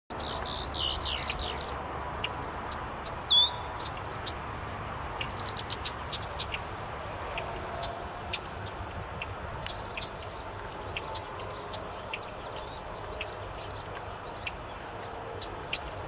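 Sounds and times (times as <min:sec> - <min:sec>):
blackbird whistled notes: 0:03.3 - 0:03.7.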